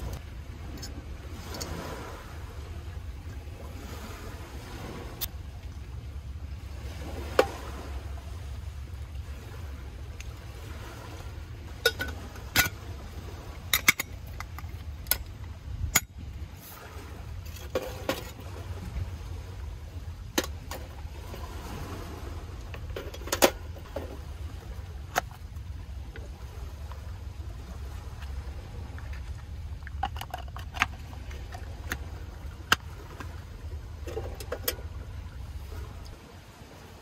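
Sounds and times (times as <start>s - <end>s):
steady low rumble: 0.0s - 37.0s
metal camping gear clinking: 11.8s - 12.9s, 13.6s - 16.2s, 22.7s - 24.2s, 29.0s - 33.2s, 34.0s - 35.0s.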